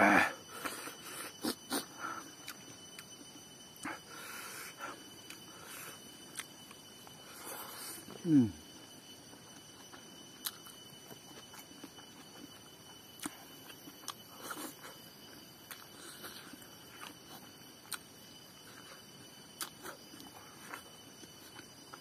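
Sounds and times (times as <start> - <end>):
person chewing: 0.6 - 3.1, 5.2 - 6.8, 9.9 - 12.5, 13.2 - 15.0, 15.7 - 18.0, 19.6 - 21.7.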